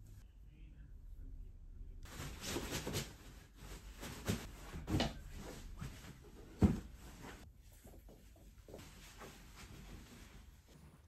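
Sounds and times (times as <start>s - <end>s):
bedding rustling: 2.1s - 11.0s
dull thumps of pillows: 3.8s - 7.4s.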